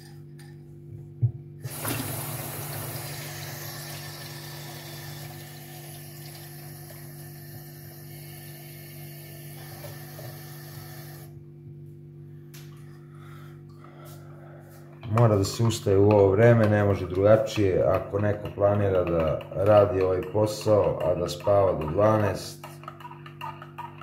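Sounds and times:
water running from tap: 0:01.6 - 0:11.3.

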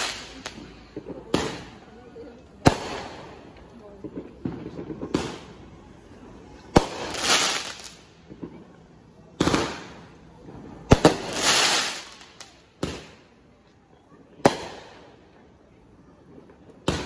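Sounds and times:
fireworks bangs: 0:00.0 - 0:02.0, 0:02.6 - 0:05.7, 0:06.7 - 0:08.7, 0:09.4 - 0:13.2, 0:14.4 - 0:15.1
crackling sparks: 0:06.7 - 0:08.1.

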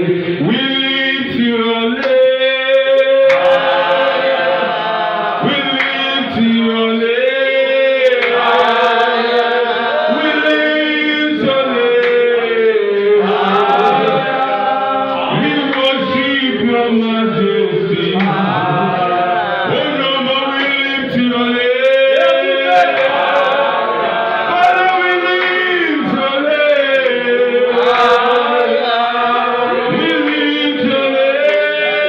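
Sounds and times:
person singing worship song: 0:00.0 - 0:32.0.

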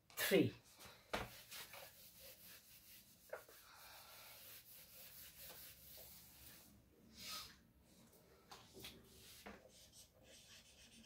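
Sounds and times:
eraser rubbing on whiteboard: 0:01.2 - 0:06.7, 0:09.1 - 0:11.0.

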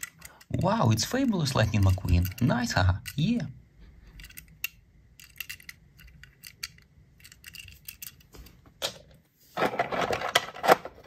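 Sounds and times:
small toys clicking and tapping: 0:00.0 - 0:03.3.

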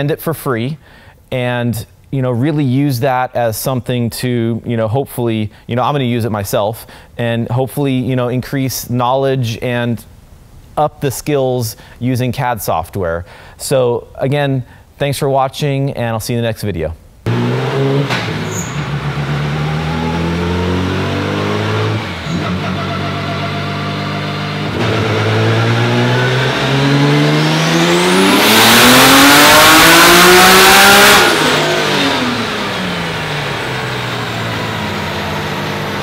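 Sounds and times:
car engine revving: 0:17.3 - 0:36.0.

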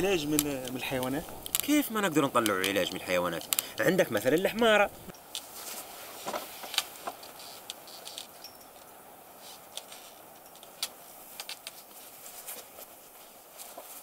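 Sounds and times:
cloth sheet rustling: 0:05.4 - 0:08.1, 0:11.0 - 0:14.0.

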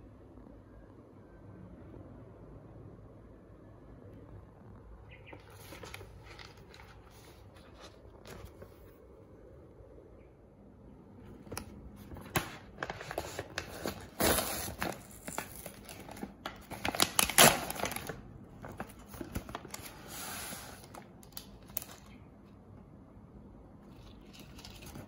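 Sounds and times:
plastic bag crinkling: 0:11.2 - 0:22.2, 0:23.9 - 0:25.0
plastic bag tearing: 0:11.4 - 0:22.0.

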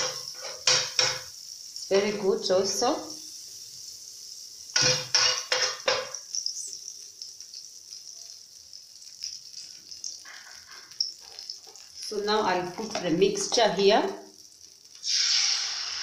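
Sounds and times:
metal spoon scraping pan: 0:00.0 - 0:01.3, 0:04.8 - 0:06.2
margarine sizzling in frying pan: 0:00.0 - 0:16.0.

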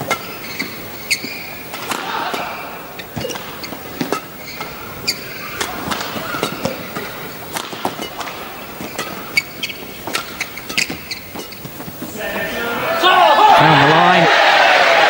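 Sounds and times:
racket striking shuttlecock: 0:00.0 - 0:11.8
shoes squeaking on court: 0:00.0 - 0:12.5.

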